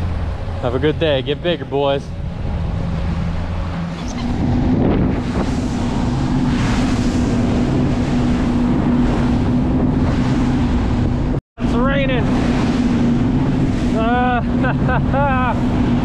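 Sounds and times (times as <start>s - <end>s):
outboard engines running: 0.0s - 16.0s
water rushing along hull: 0.0s - 16.0s
wind buffeting microphone: 0.0s - 16.0s.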